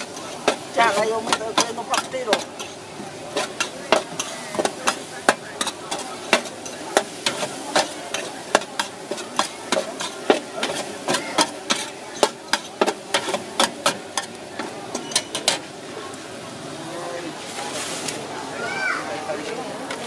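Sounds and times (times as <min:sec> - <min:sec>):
utensils scraping a steel wok: 0:00.0 - 0:15.7
food sizzling: 0:00.0 - 0:20.0.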